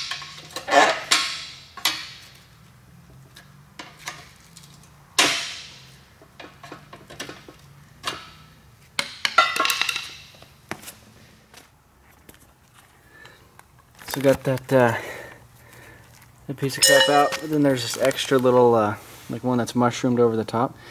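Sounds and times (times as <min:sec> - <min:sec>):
metal knocks and clinks: 0:16.8 - 0:17.6.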